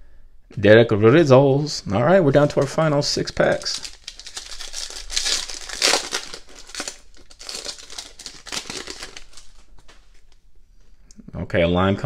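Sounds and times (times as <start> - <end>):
foil wrapper crinkling: 2.4 - 10.4.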